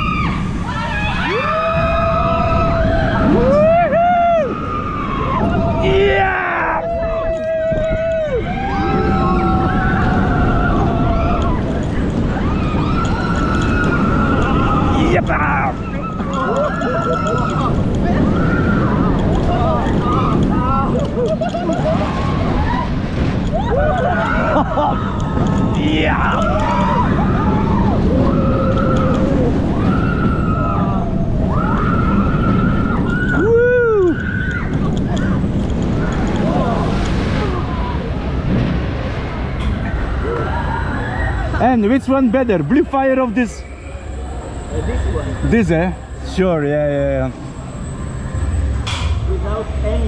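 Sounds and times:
riders screaming: 0.0s - 35.4s
roller coaster rumbling on track: 0.0s - 50.0s.

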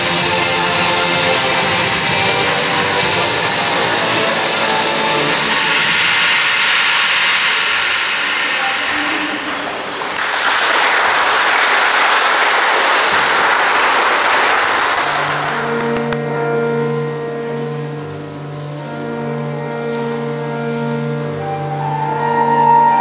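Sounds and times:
audience applause: 0.0s - 6.1s, 9.4s - 16.2s
slow instrumental music: 0.0s - 7.6s, 15.0s - 23.0s.

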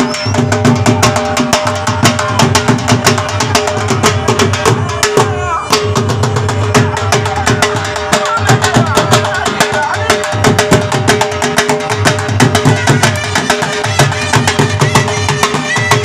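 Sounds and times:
barrel drum beaten fast: 0.0s - 16.0s.

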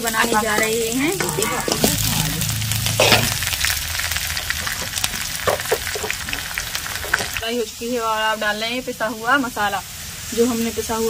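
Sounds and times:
onions sizzling in hot oil: 0.0s - 11.0s
steel ladle scraping a pan: 0.2s - 3.6s.

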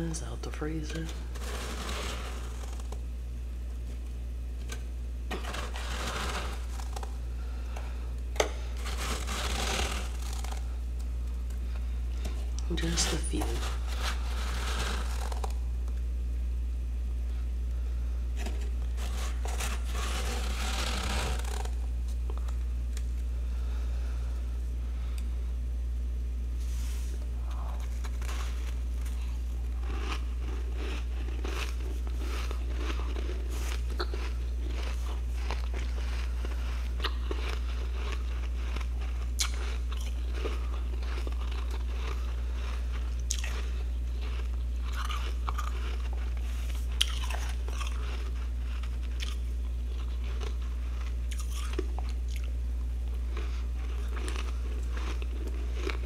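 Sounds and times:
hand scraping freezer frost: 0.0s - 3.0s, 5.3s - 7.2s, 8.4s - 10.7s, 12.6s - 15.6s, 18.4s - 21.8s, 26.6s - 38.8s
steady low hum: 0.0s - 56.0s.

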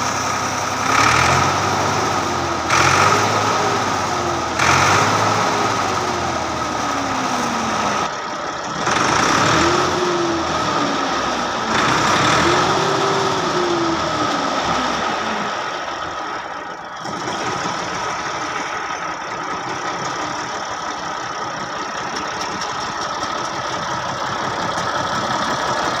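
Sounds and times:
tractor diesel engine idling: 0.0s - 26.0s.

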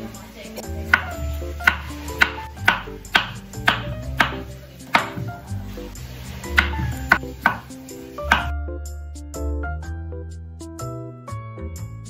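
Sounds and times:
background music with bass: 0.0s - 12.0s
knife chopping on wooden board: 0.9s - 5.4s, 6.6s - 8.5s.

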